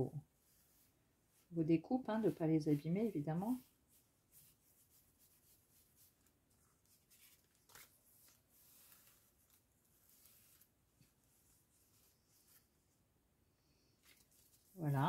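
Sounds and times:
paper rustling: 2.2 - 12.9, 13.9 - 15.0.

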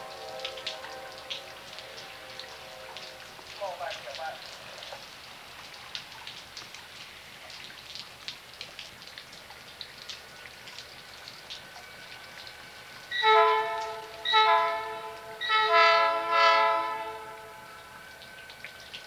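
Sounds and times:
locomotive horn chord: 0.0 - 3.4, 13.1 - 18.2
steady rain: 0.0 - 19.0.

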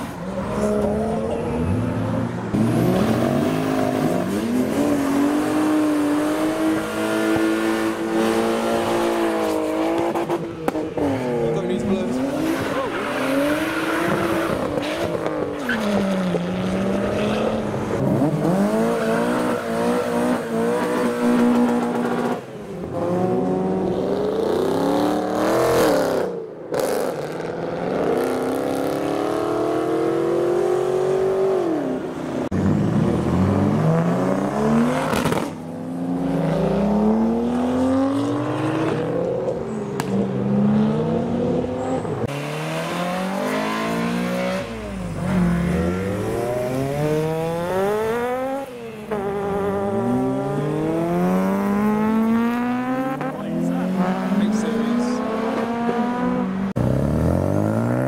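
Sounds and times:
cars accelerating hard: 0.0 - 58.0.

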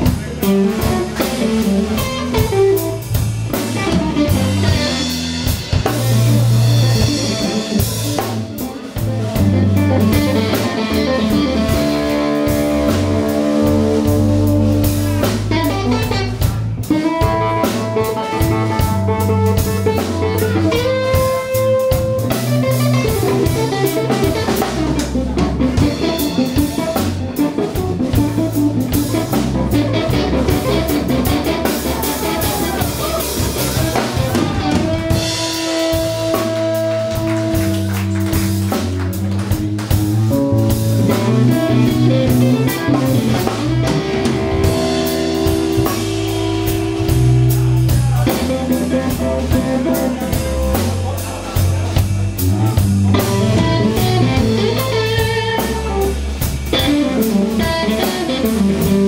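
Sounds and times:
bass line: 0.0 - 59.0
drums: 0.0 - 59.0
electric guitar bending notes: 0.0 - 59.0.

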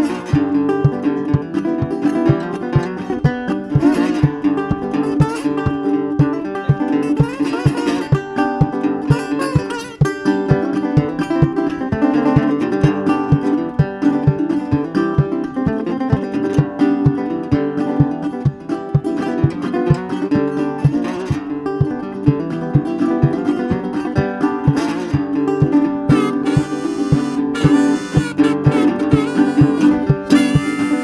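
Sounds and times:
fingerstyle blues on resonator guitar: 0.0 - 31.0
steady low beat: 17.0 - 31.0.

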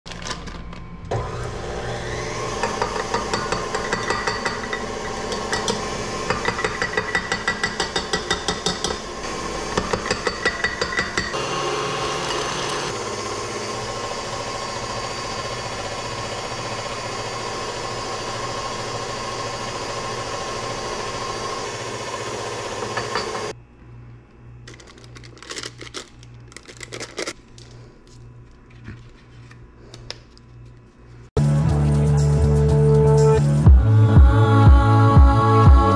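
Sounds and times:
stand mixer running: 1.1 - 7.8, 9.0 - 23.5
plastic piping bag rustling: 24.7 - 29.6.

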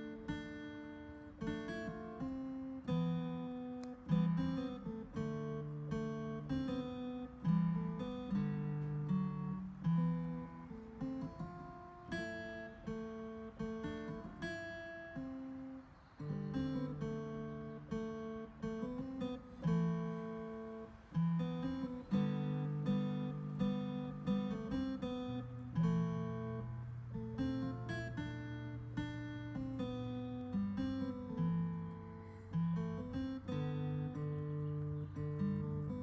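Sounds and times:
keyboard plucked guitar-like notes: 0.0 - 0.5.

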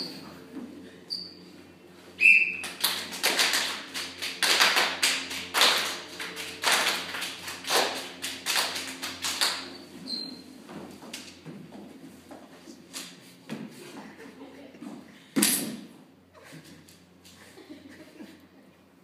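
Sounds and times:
brief high squeak: 1.1 - 1.4, 10.0 - 10.5
group clapping: 2.5 - 9.8.

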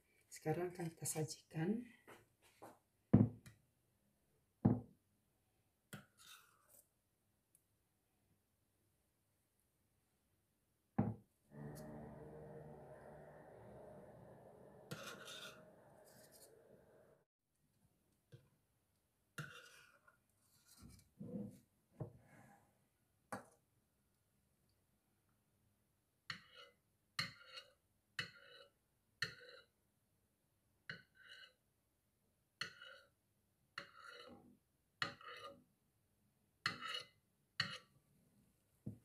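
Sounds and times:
spoon scraping a porcelain plate: 12.8 - 17.0, 19.4 - 20.0, 33.8 - 34.4, 35.0 - 35.6, 36.6 - 37.9.

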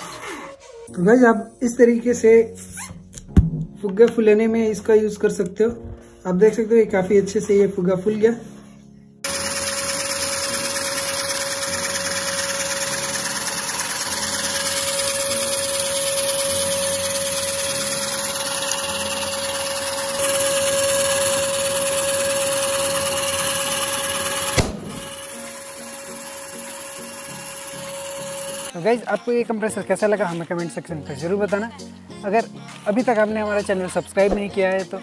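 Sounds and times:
small motor compressor whining: 9.2 - 28.8
balloon bursting bang: 24.6 - 25.2.

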